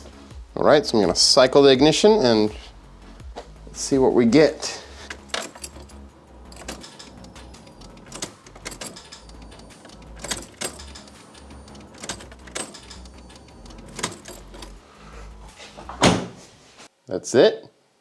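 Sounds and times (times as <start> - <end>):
keys jangling: 5.0 - 15.4
ignition key clicking: 5.1 - 14.8.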